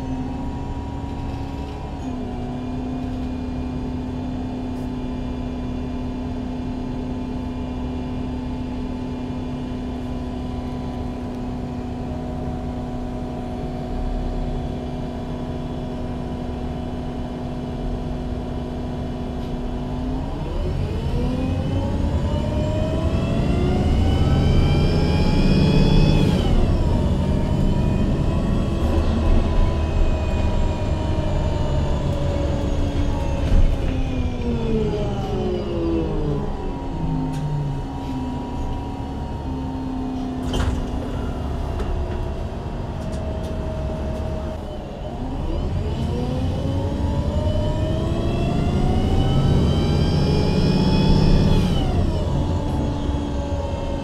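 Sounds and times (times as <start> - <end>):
bus engine and gearbox whine: 0.0 - 54.0
bus engine idling: 25.6 - 45.4.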